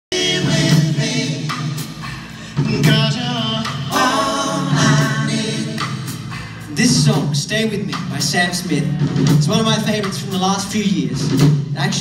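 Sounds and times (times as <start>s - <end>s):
male vocal quartet singing in harmony: 0.1s - 6.4s.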